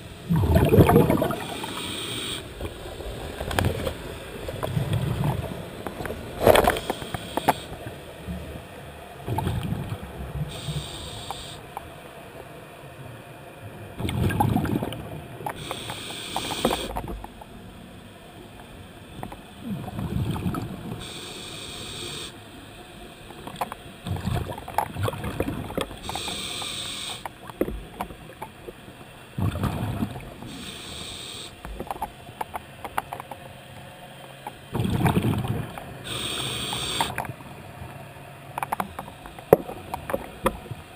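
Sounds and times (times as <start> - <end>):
exhaust bubbles crackling: 0.2 - 1.8
regulator breath hiss: 1.4 - 2.6, 6.6 - 7.8, 10.5 - 11.6, 15.6 - 17.0, 21.0 - 22.4, 26.0 - 27.4, 30.4 - 31.6, 36.0 - 37.2.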